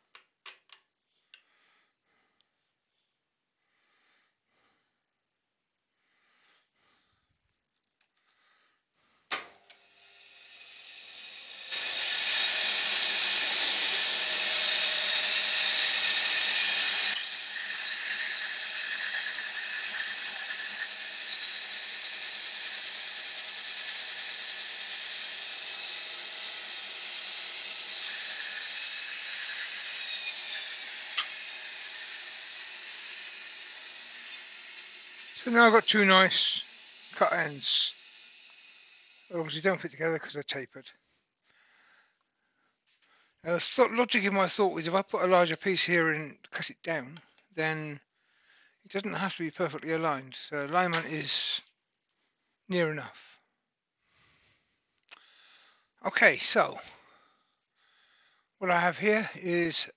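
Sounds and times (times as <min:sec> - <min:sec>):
bandsaw blade hissing: 0:09.3 - 0:39.7
bandsaw cutting wood: 0:09.3 - 0:39.9, 0:49.0 - 0:51.6, 0:55.2 - 0:57.3, 0:57.9 - 0:59.9.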